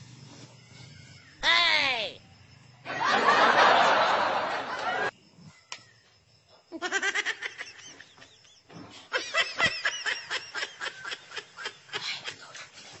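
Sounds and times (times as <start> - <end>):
women giggling: 6.7 - 12.7.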